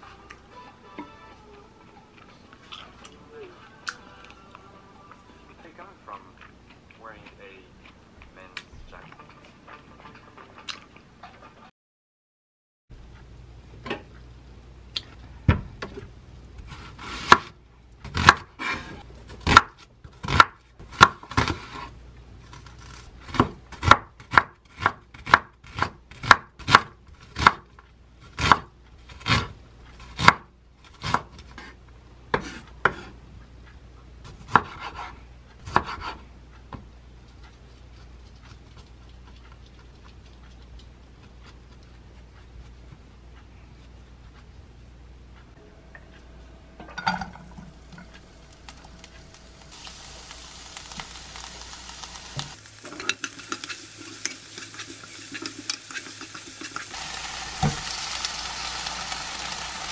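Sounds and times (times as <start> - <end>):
knife chopping on wooden board: 16.7 - 17.5, 18.1 - 21.9, 23.3 - 27.7, 28.3 - 31.7, 32.3 - 33.1, 34.3 - 36.8.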